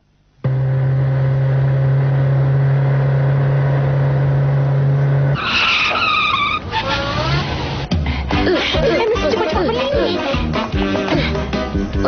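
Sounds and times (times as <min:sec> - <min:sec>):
cartoon car engine drone: 0:00.4 - 0:11.5
tyre screech: 0:05.3 - 0:07.8.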